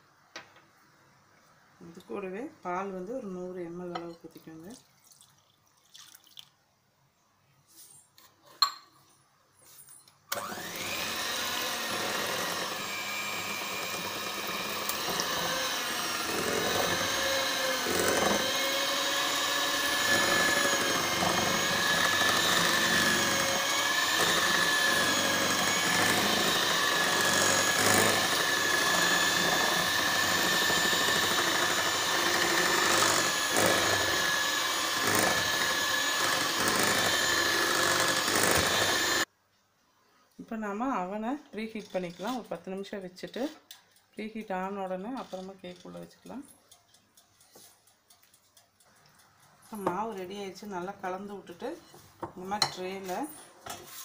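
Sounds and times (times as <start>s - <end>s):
electric hand mixer whining: 10.3s - 39.3s
beaters whisking batter in glass bowl: 11.2s - 39.3s, 44.2s - 53.2s.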